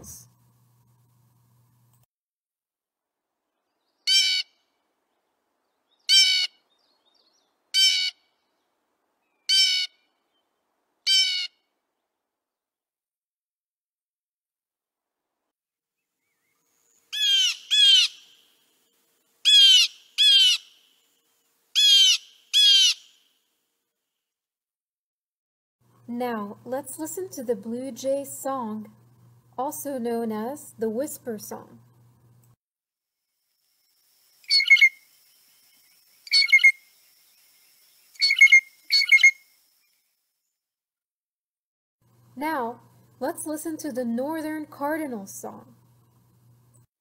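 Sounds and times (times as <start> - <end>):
blue jay calling: 4.0 - 4.6, 5.9 - 8.3, 9.2 - 10.4, 11.0 - 11.6, 16.4 - 18.6, 19.4 - 21.1, 21.7 - 23.3, 34.4 - 35.1, 36.2 - 36.8, 38.0 - 39.5.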